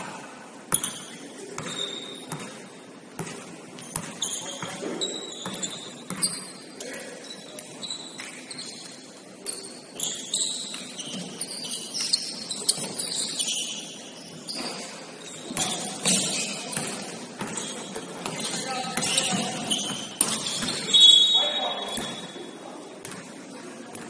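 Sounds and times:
basketball bouncing: 0.7 - 2.6, 3.2 - 4.8, 5.4 - 6.4, 15.4 - 20.9
shoes squeaking on court floor: 0.7 - 24.0.

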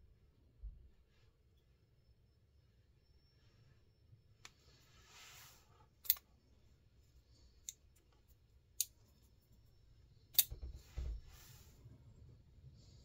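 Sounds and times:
folding knife blade clicking: 6.0 - 6.2.

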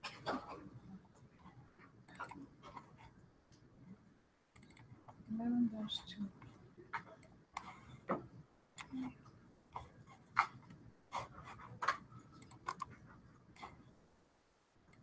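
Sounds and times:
mouse and keyboard clicks: 2.0 - 2.9, 4.5 - 5.2, 6.4 - 9.1, 9.7 - 13.0.

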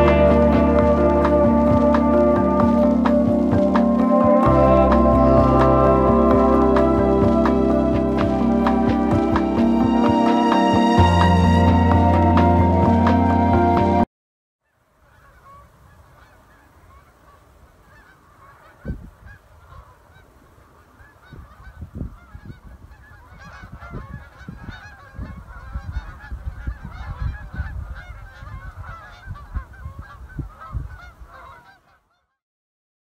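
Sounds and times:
flock of geese honking: 0.0 - 14.0, 14.6 - 32.4
low rumble with thumps: 0.0 - 14.0.

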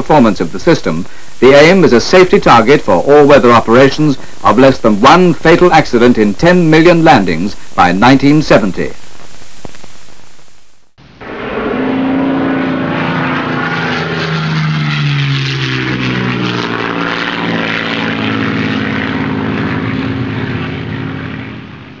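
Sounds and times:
aircraft engine drone: 11.0 - 22.0.

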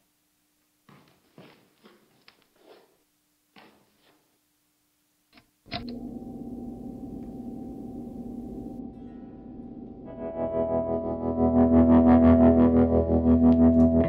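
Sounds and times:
electric guitar note ringing: 5.7 - 14.0.

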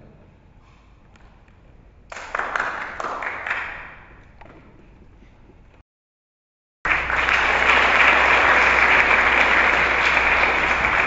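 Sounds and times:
audience applauding: 2.1 - 3.9, 6.9 - 11.0.

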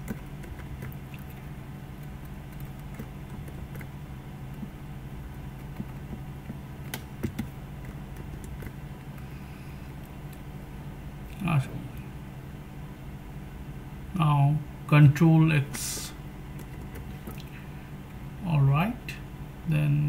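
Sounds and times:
keyboard keys clicking: 0.0 - 1.4, 2.0 - 4.7, 5.6 - 8.8
steady low hum: 0.0 - 20.0.

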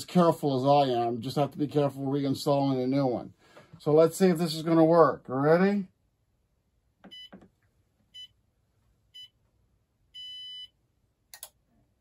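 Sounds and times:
treadmill console beeps: 7.1 - 7.4, 10.2 - 10.8.

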